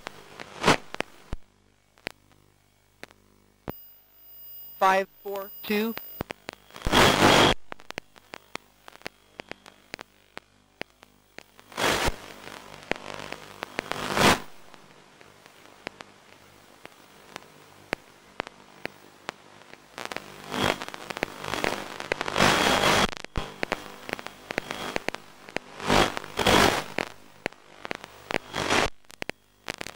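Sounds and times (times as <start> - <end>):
crackling radio static: 0.0 - 29.9.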